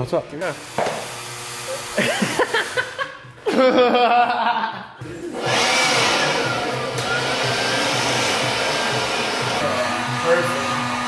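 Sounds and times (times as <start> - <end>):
heat gun blowing: 5.4 - 11.0.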